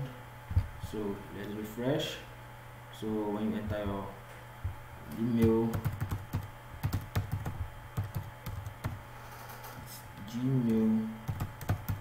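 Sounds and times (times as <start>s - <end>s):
keyboard typing: 5.2s - 9.8s, 10.7s - 12.0s.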